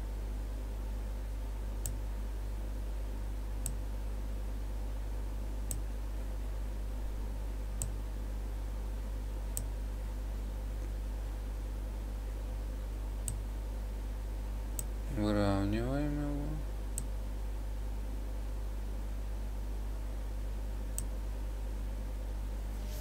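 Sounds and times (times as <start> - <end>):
low electrical hum: 0.0 - 23.0
computer mouse clicking: 13.2 - 13.4.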